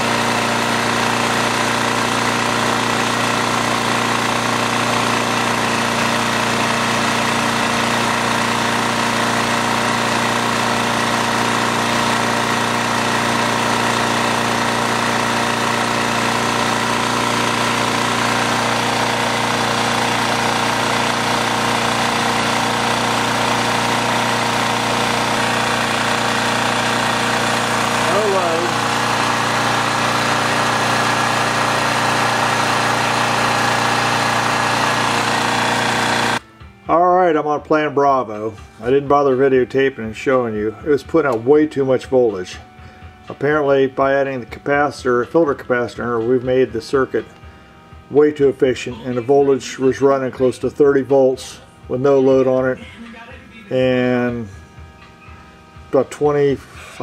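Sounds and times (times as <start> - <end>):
generator engine running: 0.0 - 57.0.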